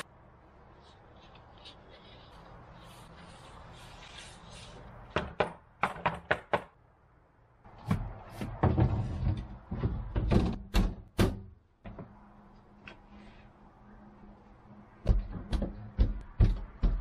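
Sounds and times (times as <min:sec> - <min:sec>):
wooden hatch door knocking and clattering: 0:15.0 - 0:17.0.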